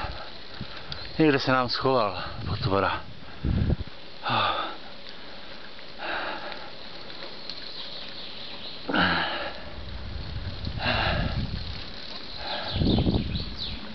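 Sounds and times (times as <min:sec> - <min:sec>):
wind rumbling on microphone: 0:00.0 - 0:04.5, 0:08.0 - 0:13.9
person breathing hard: 0:03.2 - 0:06.8, 0:08.9 - 0:09.8, 0:10.8 - 0:11.5, 0:12.4 - 0:12.9.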